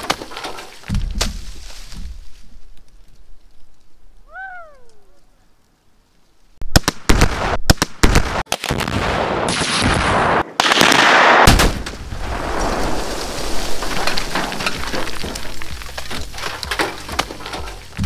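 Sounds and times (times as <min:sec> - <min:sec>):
loud explosive blasts: 0:06.6 - 0:13.8.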